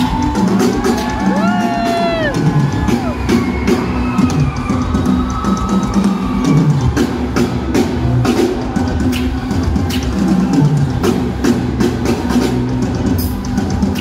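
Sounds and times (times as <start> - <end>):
drum kit steady beat: 0.0 - 14.0.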